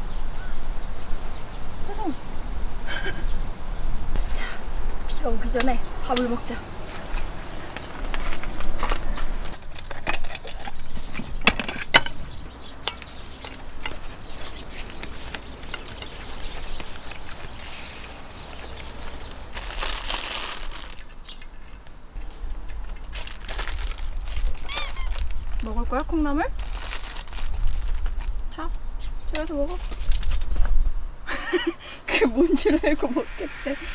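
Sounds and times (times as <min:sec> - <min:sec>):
hissing crackling burst: 0:33.1 - 0:33.9.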